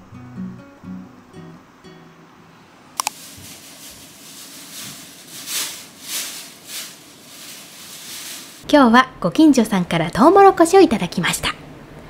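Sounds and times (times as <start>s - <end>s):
plastic bag rustling: 3.0s - 8.6s.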